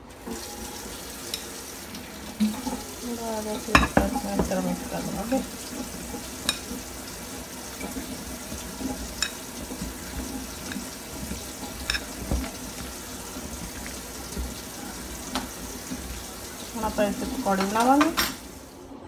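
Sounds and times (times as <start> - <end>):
batter squishing by hand: 8.2 - 16.2.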